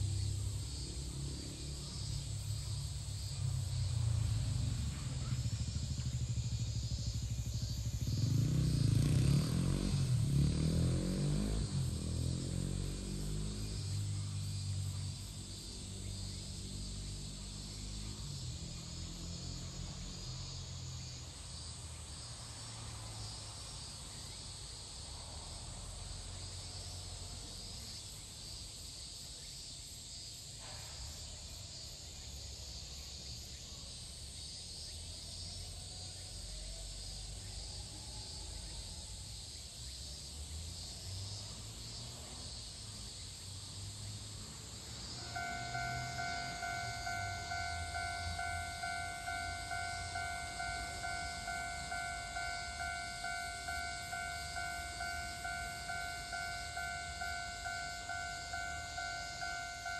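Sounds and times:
insects chorus: 0.0 - 59.9
level crossing alarm dinging: 45.2 - 59.9.

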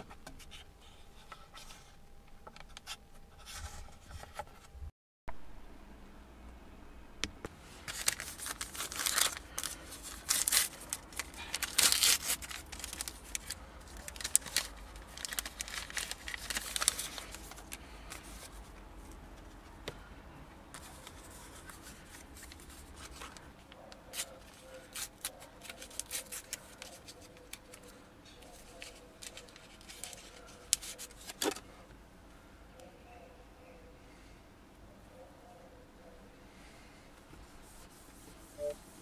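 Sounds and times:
packets crinkling and tearing: 7.8 - 18.5, 24.1 - 27.9, 28.8 - 31.6
wipe rubbing on screen: 37.4 - 39.0.

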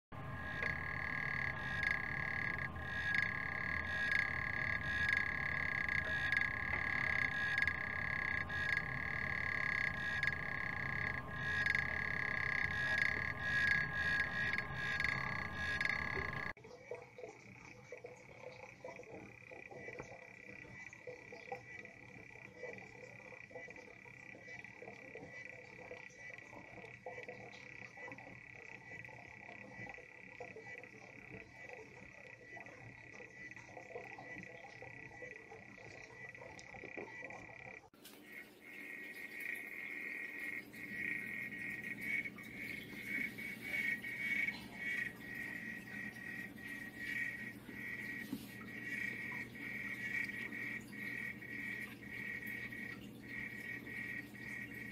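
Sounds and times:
frog calling high trill: 0.1 - 16.6, 34.2 - 54.9
faint lower-pitched sounds: 0.1 - 54.9.

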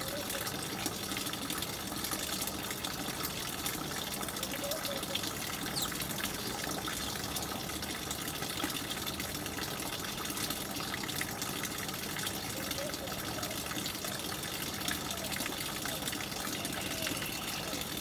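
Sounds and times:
running water rushing: 0.0 - 18.0
faint high chirps: 16.5 - 17.8.

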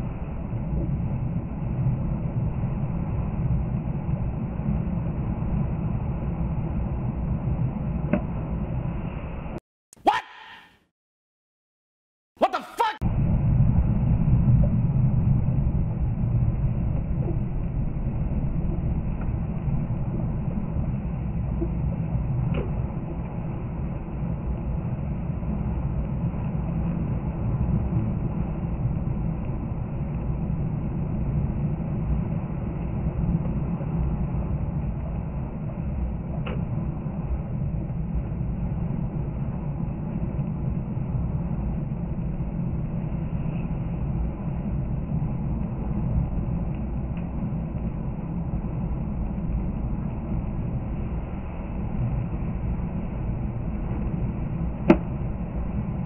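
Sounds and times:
engine and tyre rumble: 13.0 - 56.0.

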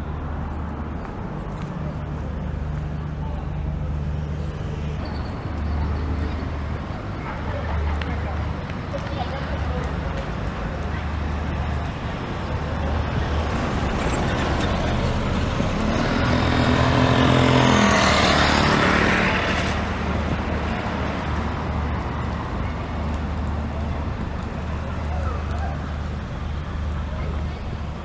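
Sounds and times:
street traffic hum: 0.0 - 28.0
vehicle driving past: 12.5 - 22.1.

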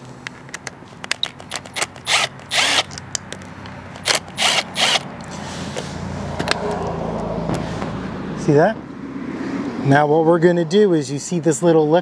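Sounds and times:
socket ratchet clicking: 0.4 - 5.3.

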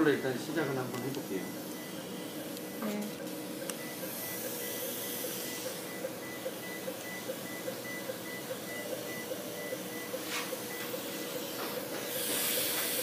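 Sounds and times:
equipment hum: 0.0 - 13.0
patient monitor beeping: 0.0 - 13.0
hiss: 12.0 - 13.0.

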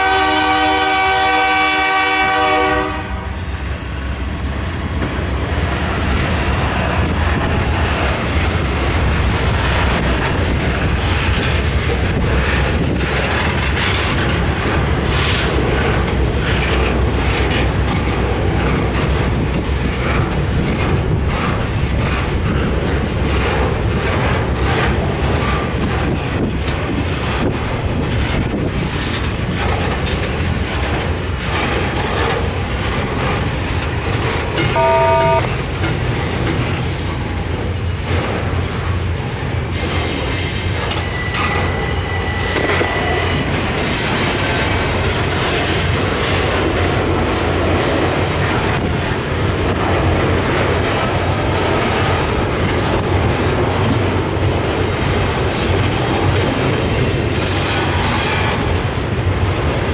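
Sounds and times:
train wheels rumbling on rail: 0.0 - 59.9
high wheel squeal: 3.1 - 6.1, 34.6 - 35.5, 39.8 - 43.6
brief pitched ringing: 34.7 - 35.5.

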